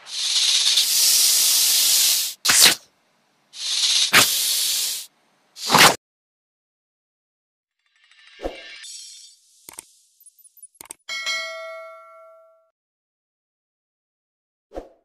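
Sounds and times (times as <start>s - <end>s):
cobra hissing: 0.0s - 2.8s, 3.5s - 6.0s
short sharp bursts: 0.0s - 2.8s, 3.6s - 6.0s.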